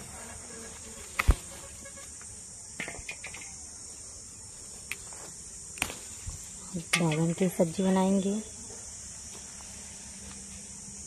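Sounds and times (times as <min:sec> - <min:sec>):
leaves rustling and clicks: 0:00.0 - 0:03.6, 0:04.6 - 0:08.3
insects chirring: 0:00.0 - 0:11.0.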